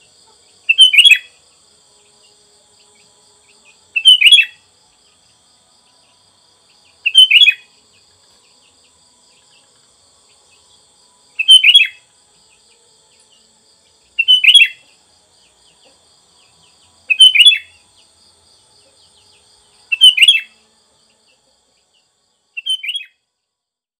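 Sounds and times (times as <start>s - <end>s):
faint high insect drone: 0.0s - 24.0s
bulbul chirping: 4.0s - 4.5s, 7.0s - 7.6s, 19.9s - 20.5s.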